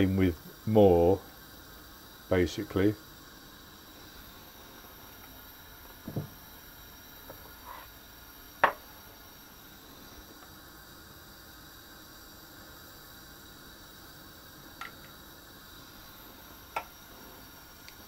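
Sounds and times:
faint steady hiss: 0:00.0 - 0:18.0
dull knock: 0:06.1 - 0:06.3.

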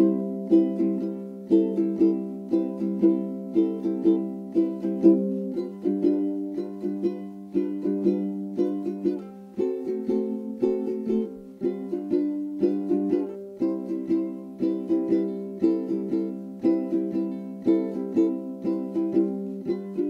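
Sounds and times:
plucked string instrument tune: 0:00.0 - 0:20.0.

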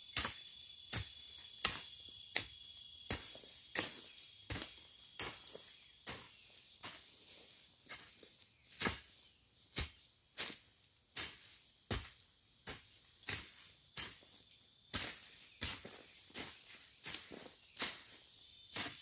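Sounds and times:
hoe chopping into soil: 0:00.1 - 0:07.1.

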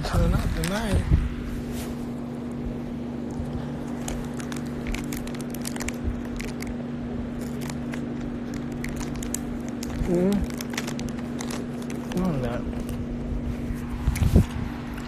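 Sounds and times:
steady low hum: 0:00.0 - 0:15.0
crackles and clicks on microphone: 0:03.2 - 0:13.0.

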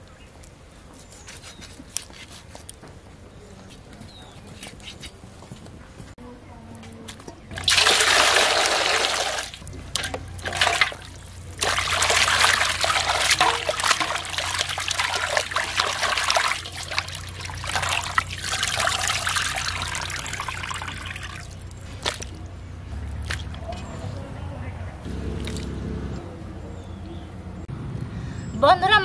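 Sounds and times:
water splashing and sloshing: 0:07.1 - 0:24.0, 0:25.2 - 0:25.8
water pouring into basin: 0:07.5 - 0:21.8.

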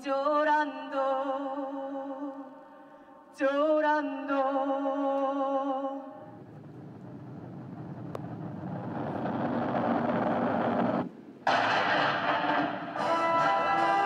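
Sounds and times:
woman singing with vibrato: 0:00.0 - 0:06.3
steady rushing noise: 0:06.2 - 0:13.0.

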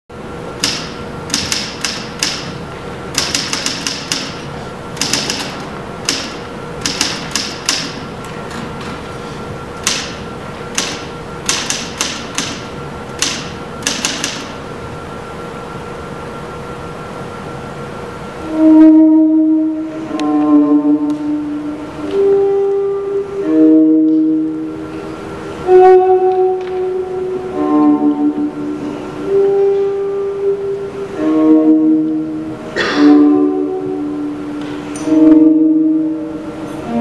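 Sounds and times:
faint steady hum: 0:00.1 - 0:37.0
typewriter keys clacking: 0:00.6 - 0:02.5, 0:03.2 - 0:04.4, 0:05.0 - 0:08.0, 0:10.8 - 0:12.6, 0:13.2 - 0:14.5.

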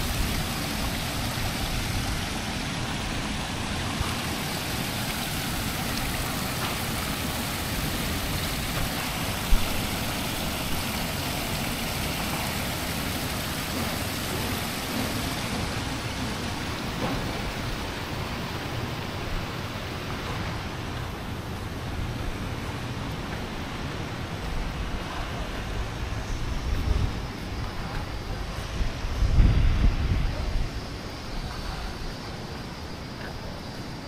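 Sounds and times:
waterfall splashing into pool: 0:00.0 - 0:21.6.

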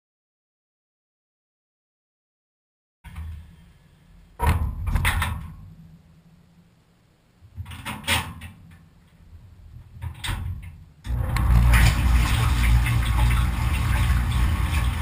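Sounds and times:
low hum: 0:11.0 - 0:15.0.

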